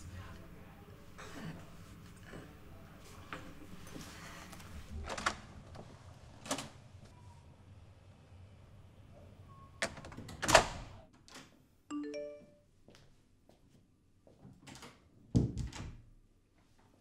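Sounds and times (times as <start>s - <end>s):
electronic chime: 11.9s - 12.6s.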